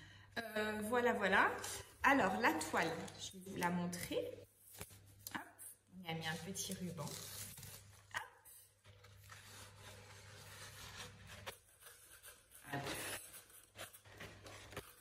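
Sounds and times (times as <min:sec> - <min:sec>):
plastic packaging crinkling: 0:08.8 - 0:15.0.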